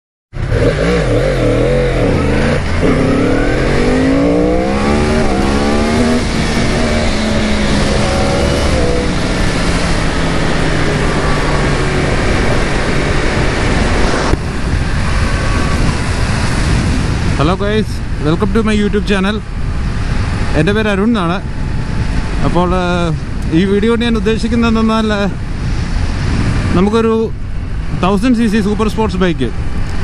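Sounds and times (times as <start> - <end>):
motorcycle engine revving: 0.4 - 17.4.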